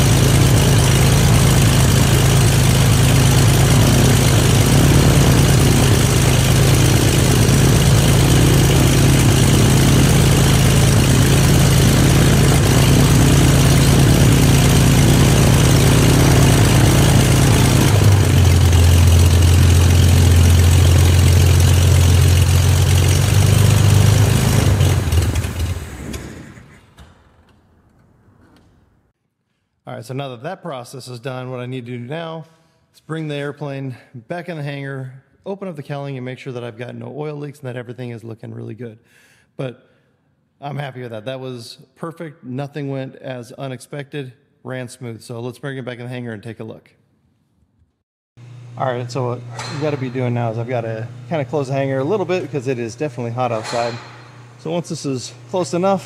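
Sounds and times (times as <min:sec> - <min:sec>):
aircraft engine and propeller running: 0:00.0 - 0:26.9, 0:48.4 - 0:56.0.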